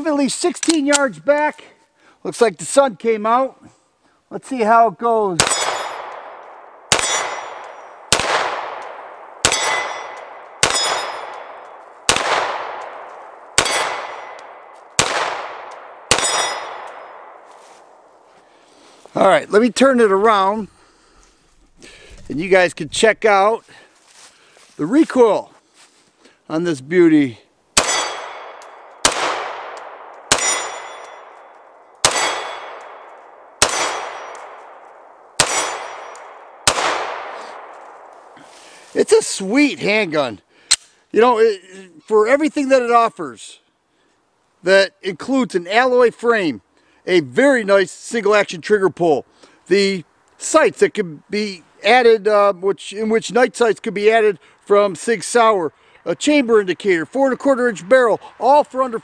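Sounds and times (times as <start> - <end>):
metallic ring of steel targets: 5.4 - 6.2, 6.9 - 8.0, 9.4 - 11.8, 13.6 - 14.8, 16.1 - 17.3, 27.8 - 29.0, 30.3 - 34.7, 35.4 - 36.4
pistol shots echoing: 5.4 - 17.5, 27.8 - 38.1.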